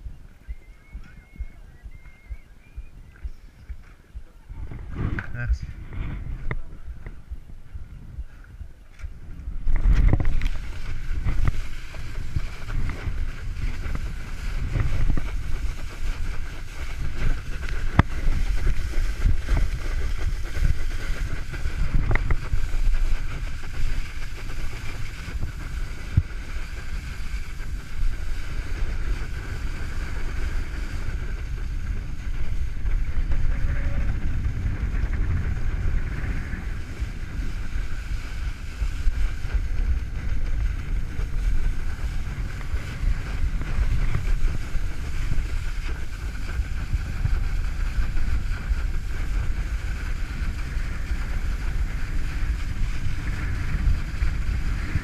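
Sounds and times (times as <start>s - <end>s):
water rushing under wakeboard: 0.0s - 55.0s
wind buffeting microphone: 0.0s - 55.0s.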